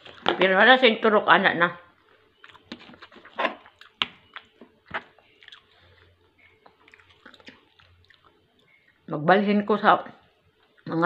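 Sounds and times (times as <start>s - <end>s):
quiet chewing: 2.0s - 9.0s.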